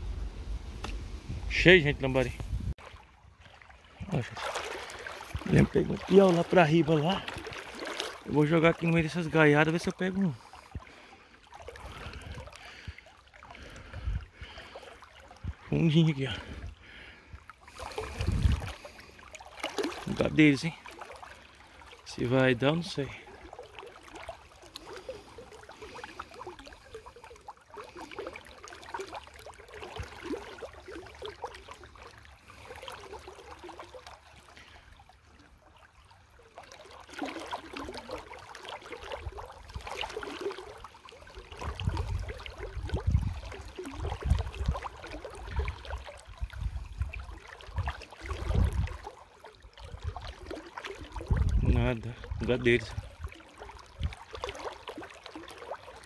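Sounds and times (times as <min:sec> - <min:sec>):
wind buffeting microphone: 0:00.0 - 0:02.8, 0:18.0 - 0:18.8, 0:41.6 - 0:44.8, 0:46.4 - 0:47.2, 0:47.8 - 0:49.0, 0:51.3 - 0:53.0
river water trickling: 0:00.0 - 0:56.0.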